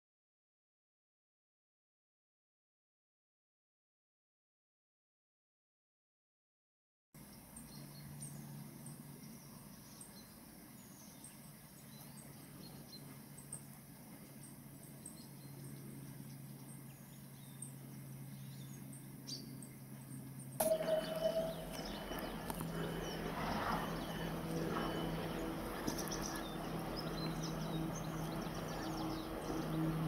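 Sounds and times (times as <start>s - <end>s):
small birds chirping: 7.2s - 30.0s
steady low hum: 7.2s - 30.0s.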